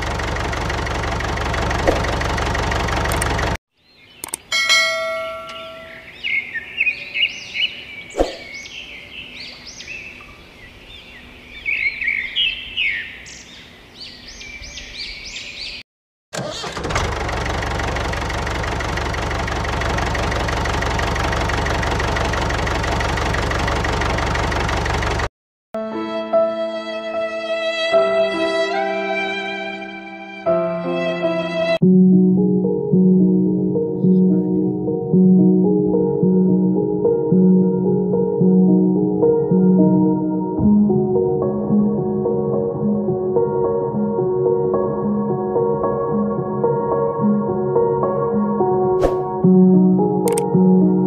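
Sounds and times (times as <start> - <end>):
engine running: 0.0 - 3.6, 16.4 - 25.3
birds chirping: 3.8 - 15.8
bell chime: 4.5 - 6.1.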